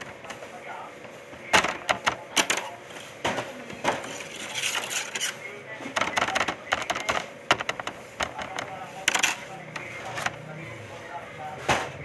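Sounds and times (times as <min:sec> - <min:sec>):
dough clacking on steel table: 0:06.0 - 0:09.9.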